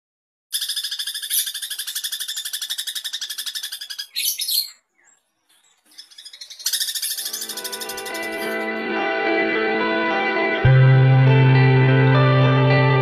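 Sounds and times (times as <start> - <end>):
bird singing a fast chattering trill: 0.5 - 8.7
harsh bird notes: 0.5 - 9.8.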